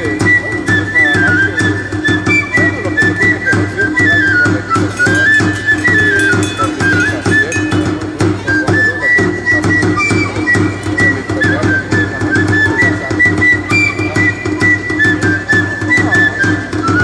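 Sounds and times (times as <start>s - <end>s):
high flute melody: 0.0s - 17.0s
steady drumbeat: 0.0s - 17.0s.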